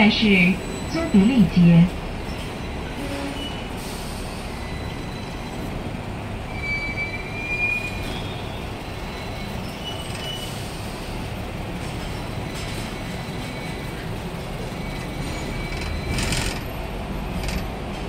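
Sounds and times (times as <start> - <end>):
tram wheels rumbling: 0.0 - 18.0
wheel squeal on rails: 6.4 - 11.1, 12.5 - 16.8.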